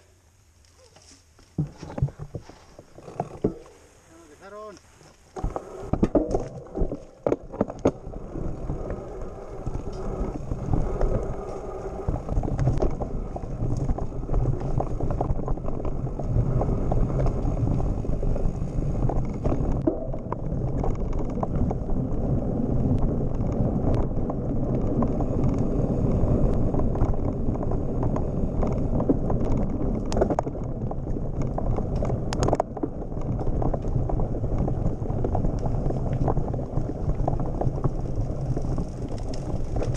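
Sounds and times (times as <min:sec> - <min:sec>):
bike tyres rumbling on dirt: 0:00.8 - 0:39.9
bike knocks and rattles: 0:01.0 - 0:03.8, 0:05.3 - 0:08.0.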